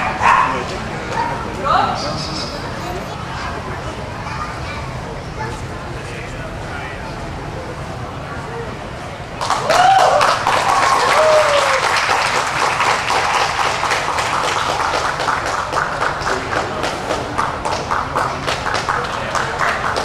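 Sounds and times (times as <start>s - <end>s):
crowd applauding: 9.4s - 20.0s.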